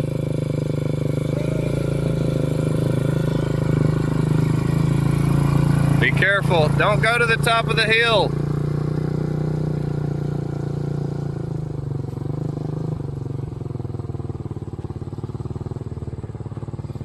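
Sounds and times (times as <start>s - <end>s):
quad engine running: 0.0s - 17.0s.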